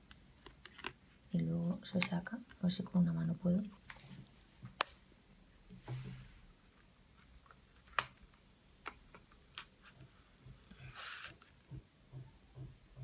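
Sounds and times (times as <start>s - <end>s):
paper rustling: 10.8s - 11.4s.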